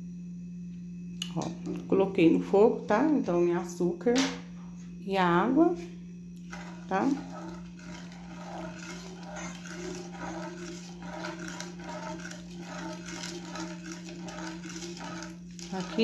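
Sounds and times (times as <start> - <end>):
steady low hum: 0.0 - 16.0
plastic spoon scraping saucepan: 6.4 - 16.0.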